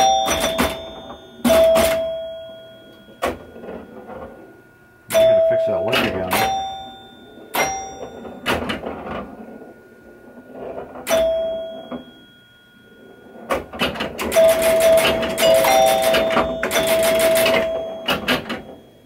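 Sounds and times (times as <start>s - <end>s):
mechanical clacking: 0.0s - 19.0s
pinball chimes ringing: 0.0s - 19.0s.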